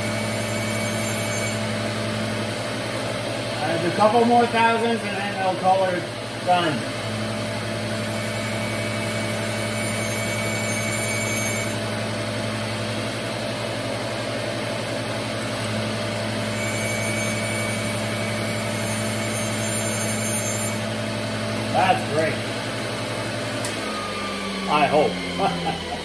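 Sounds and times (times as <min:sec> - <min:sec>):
surface grinder running: 0:16.0 - 0:26.0.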